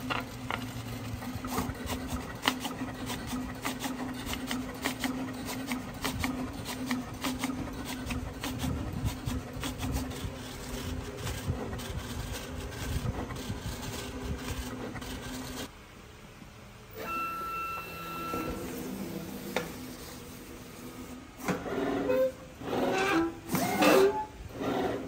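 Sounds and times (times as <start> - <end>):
cutting plotter whirring: 0.0 - 15.9, 16.7 - 25.0.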